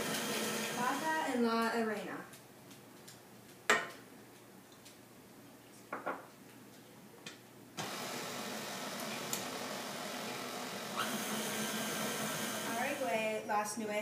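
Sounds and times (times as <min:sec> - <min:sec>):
electric stand mixer running: 0:00.0 - 0:01.0, 0:07.8 - 0:13.1.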